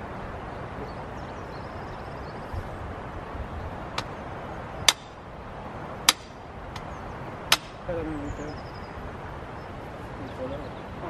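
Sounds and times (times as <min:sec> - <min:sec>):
hammer striking metal post: 0:04.9 - 0:05.1, 0:06.1 - 0:06.3, 0:07.5 - 0:07.8.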